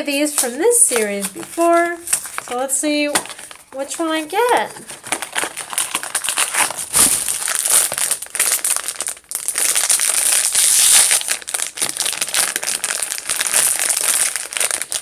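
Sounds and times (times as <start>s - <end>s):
foil pouch crinkling: 0.1s - 15.0s.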